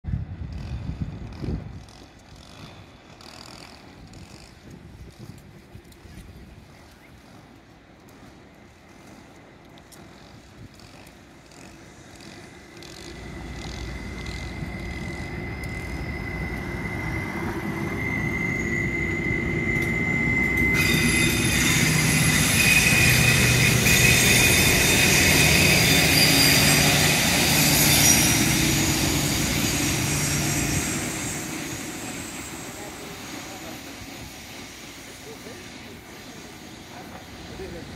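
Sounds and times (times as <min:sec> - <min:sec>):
train wheel noise: 0:00.1 - 0:37.9
train accelerating whine: 0:10.0 - 0:37.9.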